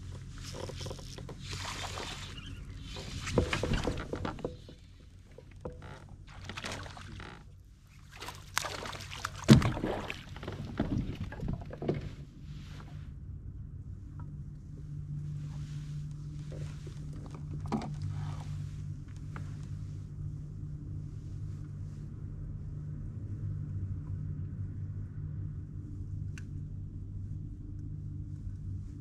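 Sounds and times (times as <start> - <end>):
sharp knocks on kayak: 9.4 - 12.1.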